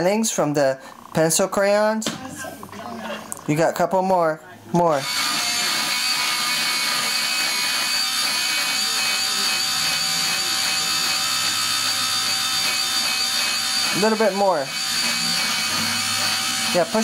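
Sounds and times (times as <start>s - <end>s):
electric pencil sharpener whining: 4.8s - 17.0s
blades grinding pencil: 5.0s - 17.0s.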